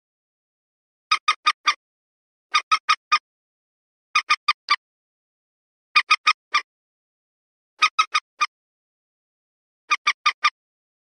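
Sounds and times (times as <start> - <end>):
moorhen calling: 6.0 - 6.7, 7.8 - 8.5, 9.9 - 10.6.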